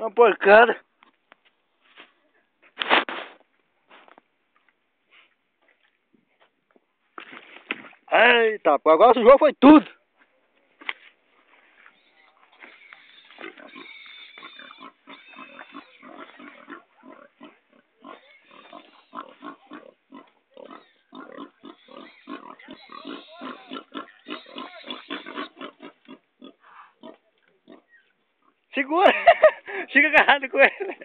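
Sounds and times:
pigs grunting: 0:11.9 - 0:28.7.

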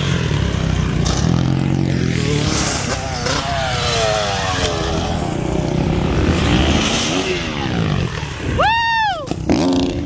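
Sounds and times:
motorbike engine revving: 0:00.0 - 0:08.4.

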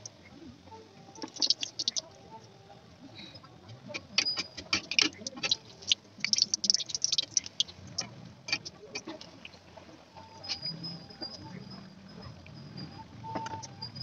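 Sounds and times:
oil crackling and spitting: 0:01.2 - 0:02.0, 0:04.6 - 0:09.6.

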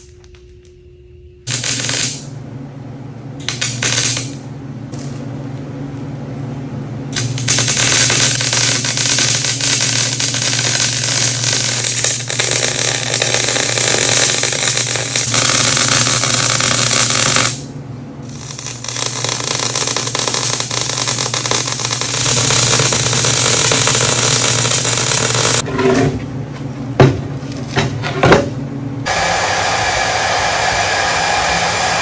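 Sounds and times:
low hum: 0:00.0 - 0:32.0
welding arc crackling hiss: 0:01.5 - 0:02.3, 0:03.4 - 0:04.4, 0:07.1 - 0:25.6, 0:29.1 - 0:32.0.

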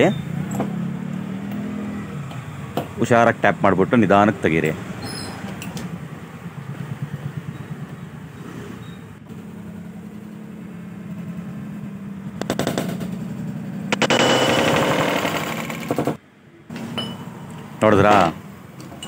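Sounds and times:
fast even rattling: 0:13.9 - 0:16.2.

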